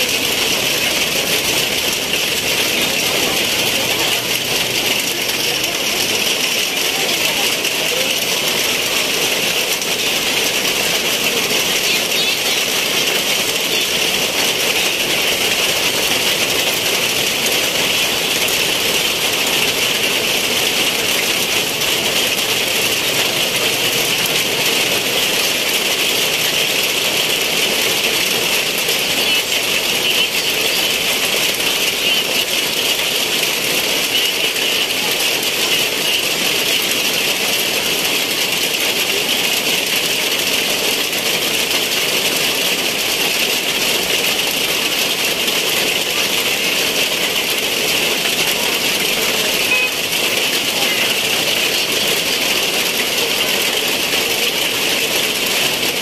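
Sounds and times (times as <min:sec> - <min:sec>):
heavy rain pouring: 0:00.0 - 0:56.0.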